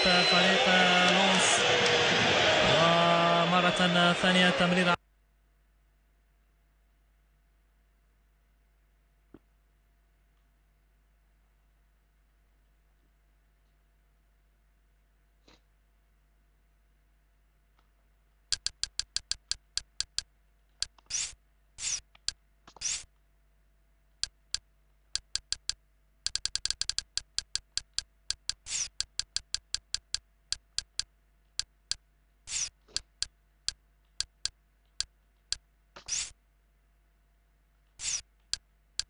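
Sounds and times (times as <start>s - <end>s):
interface clicks: 18.5s - 23.1s, 24.2s - 36.4s, 38.0s - 39.0s.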